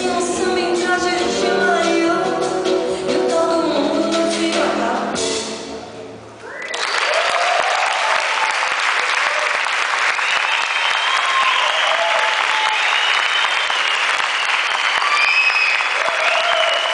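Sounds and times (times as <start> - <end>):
whistles and shouts: 6.4 - 7.0, 10.1 - 16.9
crowd cheering: 6.4 - 16.9
audience clapping: 6.5 - 16.9.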